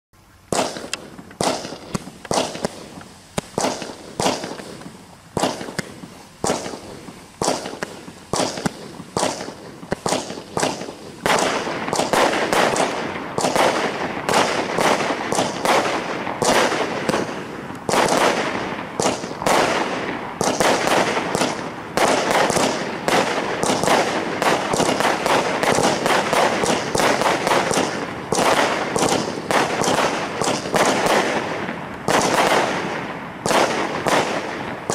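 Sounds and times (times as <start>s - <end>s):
firework cake shots: 0.5s - 34.9s.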